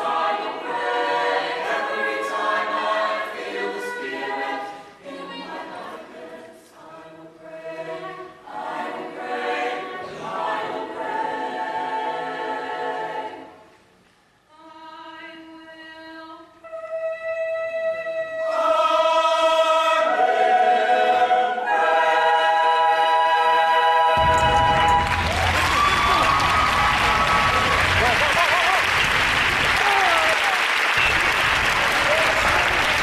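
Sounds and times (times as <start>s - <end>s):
choir singing held chords: 0.0s - 13.8s, 16.6s - 28.8s.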